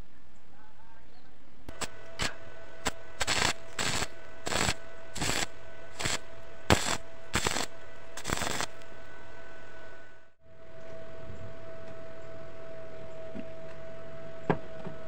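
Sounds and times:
steady hum: 1.6s - 15.0s
arc welding crackle: 1.7s - 9.1s.

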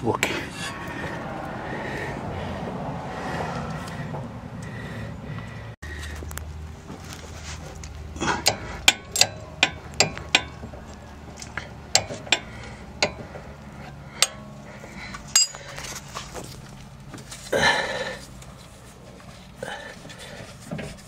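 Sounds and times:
wrench clicking on metal: 8.4s - 10.6s, 11.9s - 13.2s.

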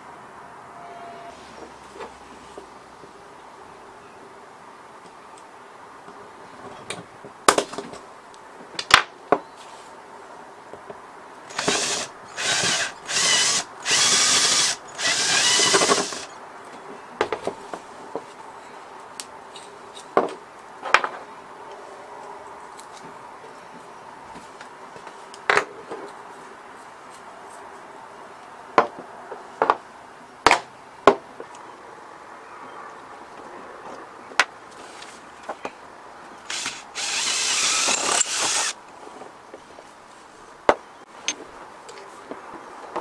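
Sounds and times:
cordless drill drilling: 11.5s - 16.4s, 36.5s - 38.8s.

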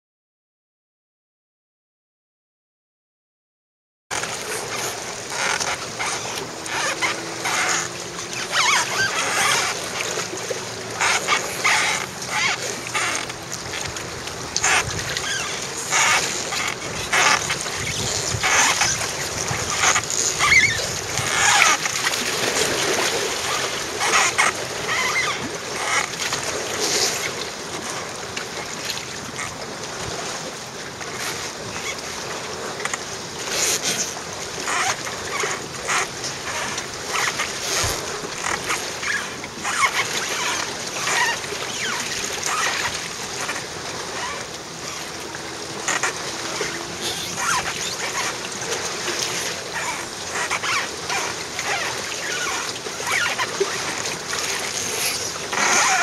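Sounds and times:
lake water splashing and lapping: 4.1s - 56.0s.

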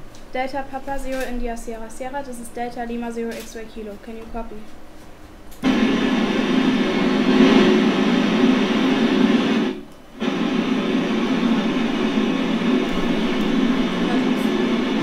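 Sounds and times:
radio static hiss: 5.6s - 15.0s.

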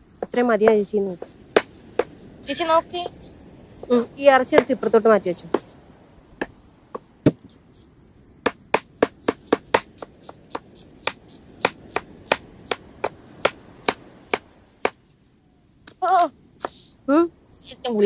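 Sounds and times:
knife chopping on wooden board: 1.2s - 2.2s, 8.5s - 15.0s.

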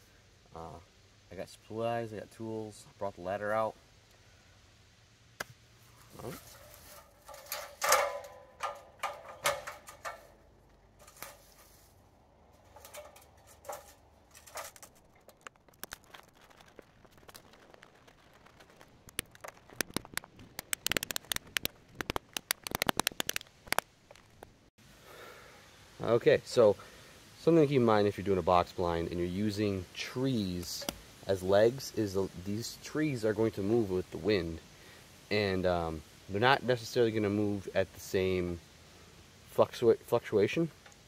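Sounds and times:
knocks and clatter: 6.6s - 10.3s
quick sharp clicks and crackles: 12.8s - 24.6s.

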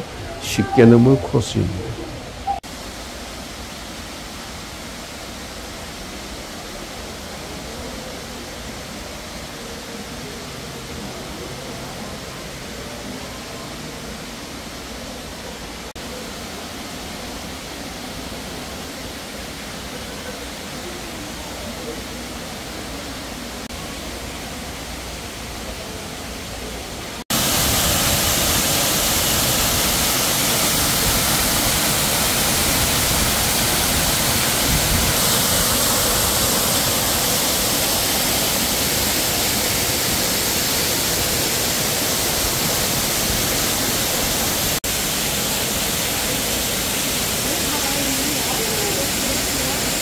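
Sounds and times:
waterfall rushing: 0.0s - 50.0s.

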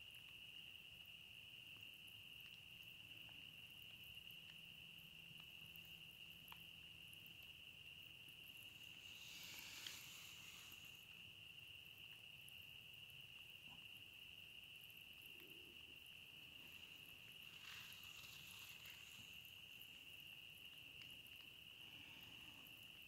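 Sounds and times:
night animals trilling: 8.5s - 11.8s.

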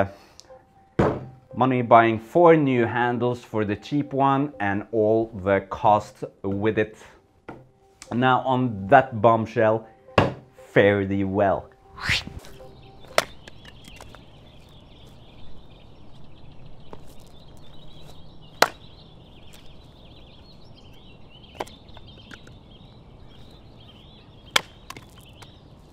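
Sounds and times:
axe chopping firewood: 18.6s - 18.8s, 24.5s - 25.2s.

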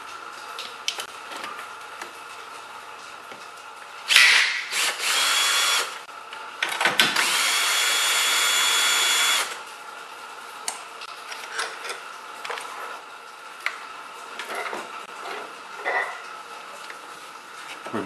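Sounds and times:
cordless drill motor whine: 4.1s - 6.0s, 7.2s - 9.6s.

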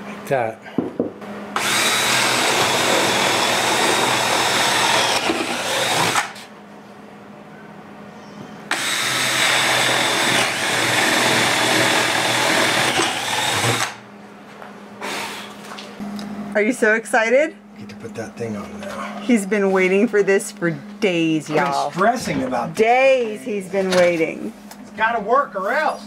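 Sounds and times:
cordless drill boring through wood: 1.6s - 6.4s, 8.7s - 14.0s.

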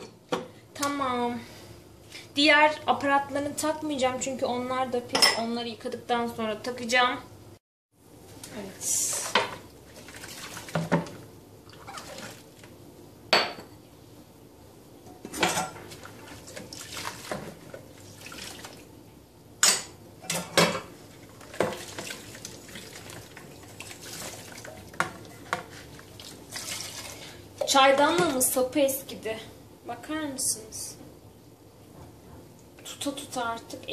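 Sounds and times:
water sloshing and scrubbing: 9.9s - 12.7s, 15.7s - 18.9s, 21.1s - 28.5s.

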